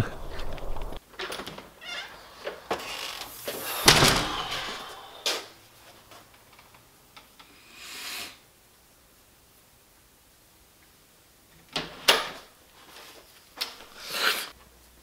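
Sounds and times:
door opening and shutting: 0.0 - 5.5, 11.7 - 12.5.

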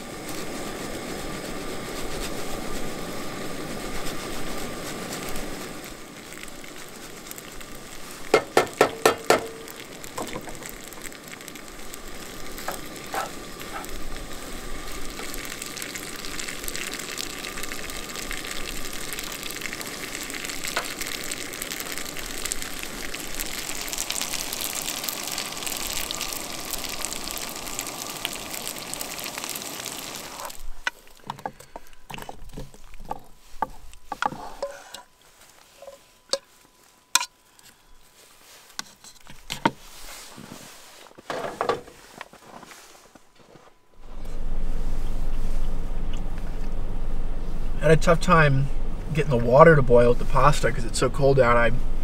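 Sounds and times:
food sizzling in a frying pan: 0.0 - 31.4
clinks and taps: 8.4 - 9.6
spoon scraping a pan: 33.0 - 35.1, 35.7 - 36.5.

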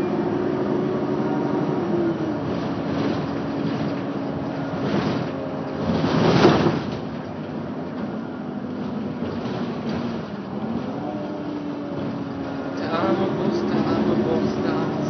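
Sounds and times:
bus engine hum inside cabin: 0.0 - 15.0.

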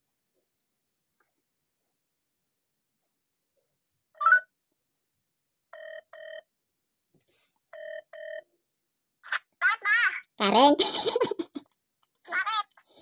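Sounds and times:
phone ringback tone: 5.8 - 6.5, 7.7 - 8.5.

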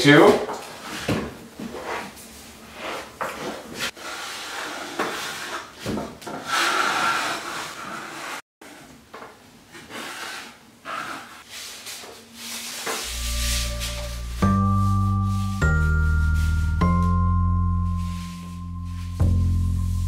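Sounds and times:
taping knife scraping compound: 2.8 - 8.4.

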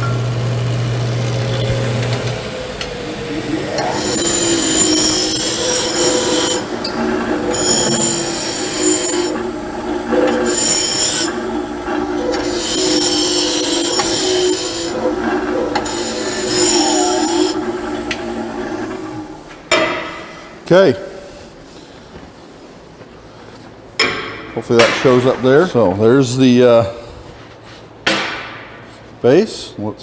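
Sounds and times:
disc sander motor running: 0.0 - 19.5
metal squealing grind: 1.6 - 19.5.

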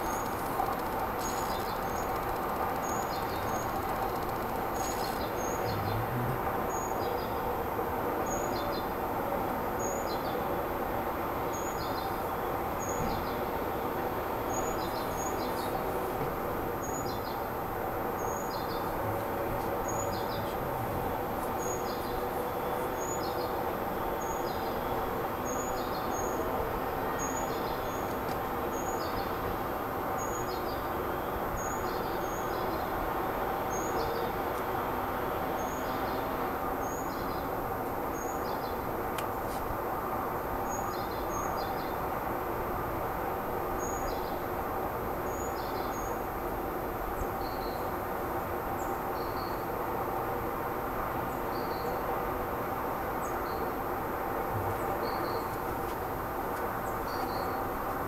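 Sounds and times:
steady background noise: 0.0 - 58.0.

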